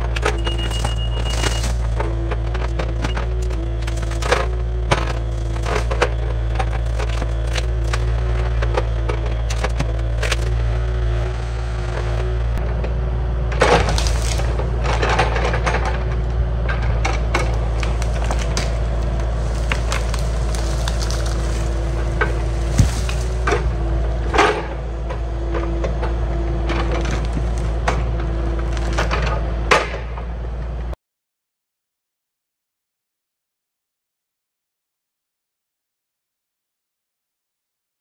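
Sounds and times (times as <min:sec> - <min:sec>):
diesel engine running: 0:00.0 - 0:31.0
wood cracking and snapping: 0:00.1 - 0:12.1, 0:13.6 - 0:15.9, 0:17.0 - 0:24.8, 0:25.4 - 0:29.2.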